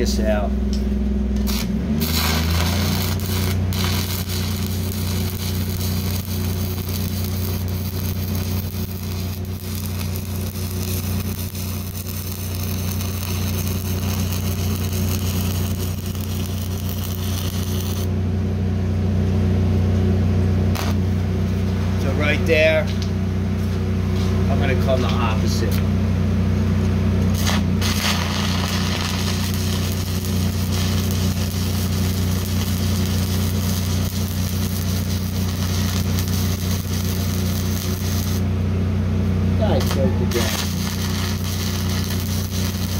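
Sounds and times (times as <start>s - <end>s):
steady low hum: 0.0s - 42.9s
welding arc crackling: 1.4s - 18.1s, 20.7s - 23.1s, 27.2s - 38.5s, 39.6s - 42.9s.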